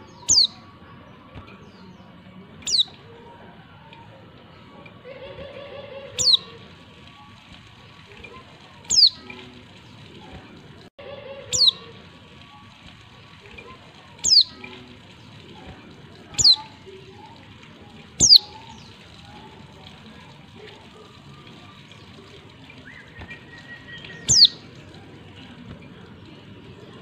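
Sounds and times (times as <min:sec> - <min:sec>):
high descending bird call: 0:11.5 - 0:11.8.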